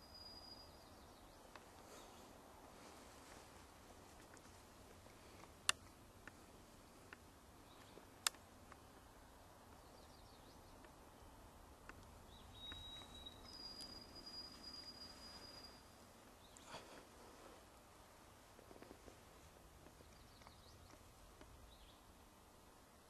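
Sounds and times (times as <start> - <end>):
songbird whistling: 0.0 - 1.4, 12.3 - 16.8
faint hiss: 0.0 - 23.0.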